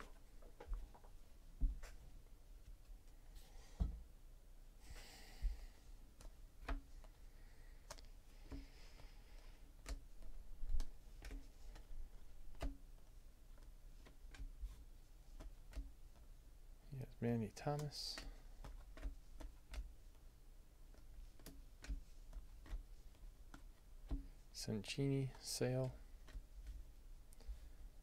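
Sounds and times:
cards clicking and tapping: 7.8 - 16.3, 17.5 - 20.3, 20.9 - 27.8.

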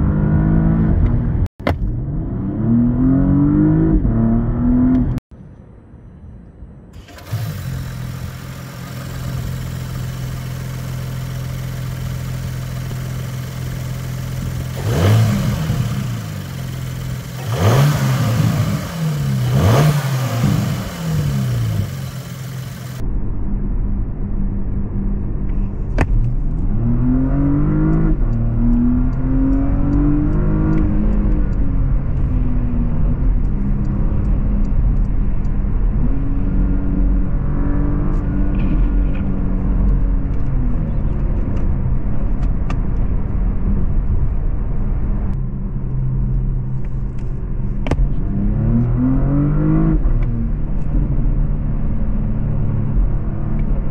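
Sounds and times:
engine revving: 0.0 - 5.2, 7.0 - 23.0, 26.6 - 31.6, 47.9 - 51.2
car engine idling: 7.0 - 23.0
engine accelerating through gears: 7.0 - 23.0, 26.1 - 35.1, 47.8 - 53.9.

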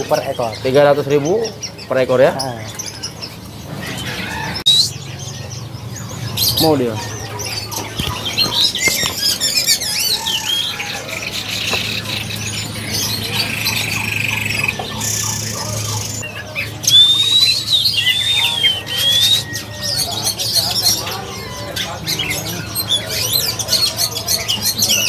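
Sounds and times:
songbirds chirping and warbling: 0.0 - 25.0
whistled bird phrase: 3.8 - 5.1, 6.4 - 25.0.

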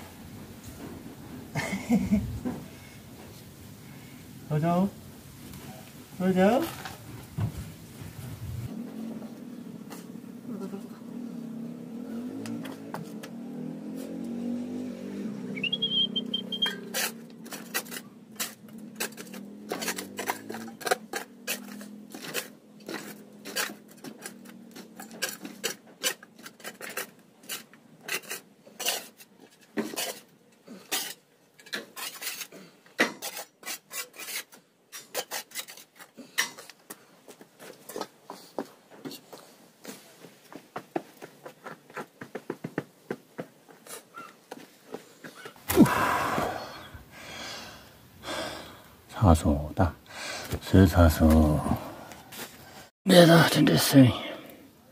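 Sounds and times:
brief high squeak: 15.6 - 17.0
objects clattering against basin: 16.7 - 33.5.

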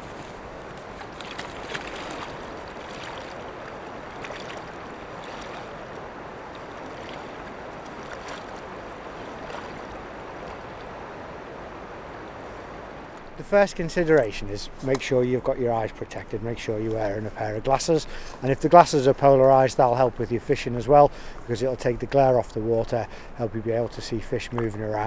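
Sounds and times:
legs splashing through water: 0.0 - 12.1
flowing river rushing: 0.0 - 15.8.

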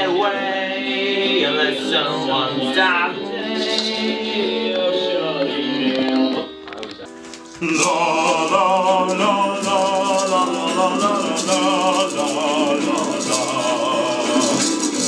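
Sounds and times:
group of people singing: 0.0 - 6.5, 7.6 - 15.0
maracas shaking: 7.1 - 15.0
strummed acoustic guitar: 7.1 - 15.0.

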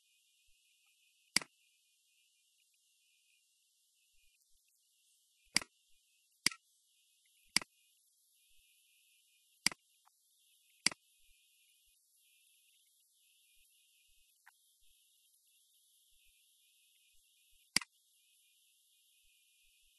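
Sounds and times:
faint steady hiss: 0.0 - 19.9
computer mouse clicking: 5.5 - 5.7, 7.5 - 7.7.

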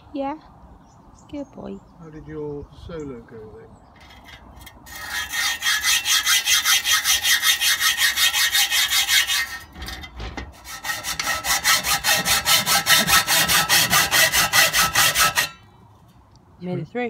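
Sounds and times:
hacksaw cutting metal pipe: 4.0 - 15.6.

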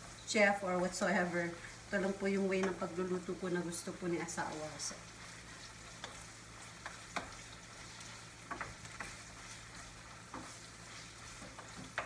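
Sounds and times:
meat sizzling in a frying pan: 0.0 - 12.0
spatula scraping and tapping pan: 2.5 - 3.0, 4.4 - 12.0.

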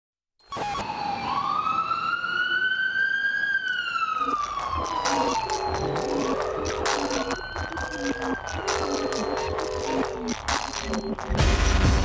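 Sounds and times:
siren wailing: 0.4 - 11.4
music with a beat: 4.4 - 12.0.

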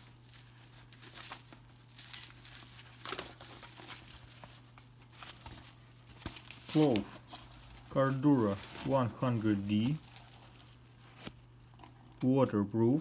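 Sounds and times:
nylon webbing rustling: 0.0 - 12.2
faint low hum: 0.0 - 13.0.

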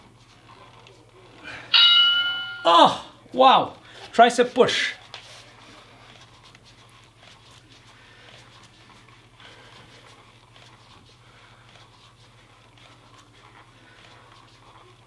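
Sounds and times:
low hum: 1.8 - 3.1.

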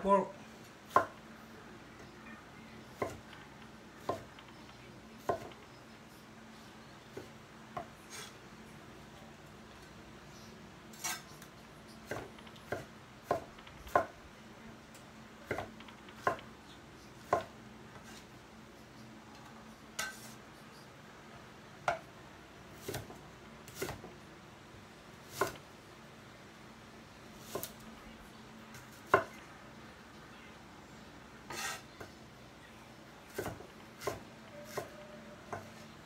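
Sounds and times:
knife chopping on wooden board: 0.9 - 1.2, 3.0 - 3.2, 4.0 - 4.3, 5.2 - 5.6, 12.0 - 14.1, 15.4 - 16.4, 17.2 - 17.5, 22.8 - 24.1, 25.3 - 25.6, 27.4 - 27.7, 29.0 - 29.4, 33.3 - 34.9.

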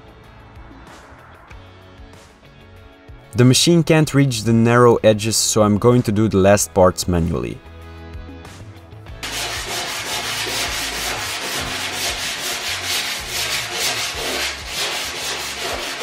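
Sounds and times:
sandpaper rubbing on metal: 9.2 - 16.0.

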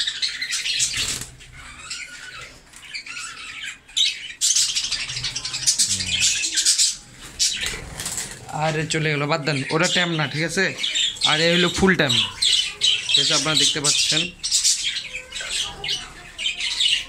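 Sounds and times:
budgerigars chattering and squawking: 0.0 - 17.0
wings fluttering: 0.7 - 2.0, 7.2 - 8.8.

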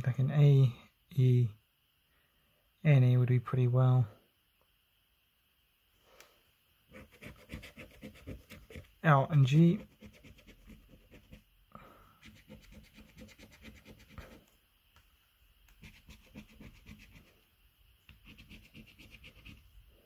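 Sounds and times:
coin scraping scratchcard: 12.2 - 14.2, 15.8 - 17.2.

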